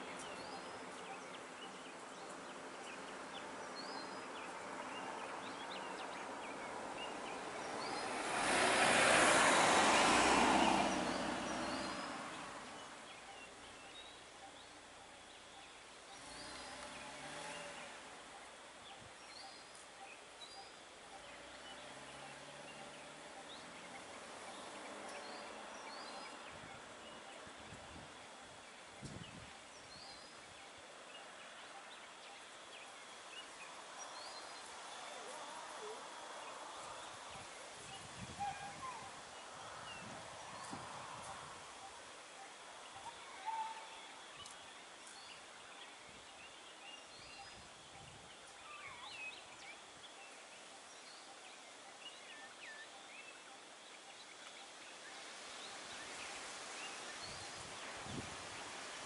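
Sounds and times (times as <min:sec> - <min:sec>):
small birds chirping: 0:00.0 - 0:59.0
faint vehicle passing: 0:04.6 - 0:13.8, 0:16.1 - 0:18.3, 0:21.1 - 0:27.6
car passing by: 0:04.7 - 0:13.2, 0:16.2 - 0:18.1, 0:21.2 - 0:27.3.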